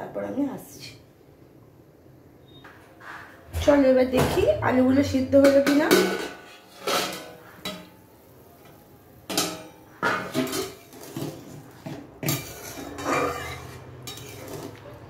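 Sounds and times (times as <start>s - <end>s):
metal lid clattering: 5.3s - 8.0s, 9.3s - 14.8s
metal spoon clinking against pan: 12.2s - 14.8s.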